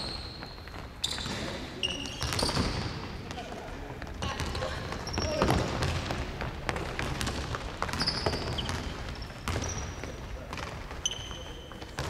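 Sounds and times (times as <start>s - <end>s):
sneaker squeaks: 0.0s - 6.2s, 7.0s - 12.0s
basketball bouncing: 4.1s - 11.0s.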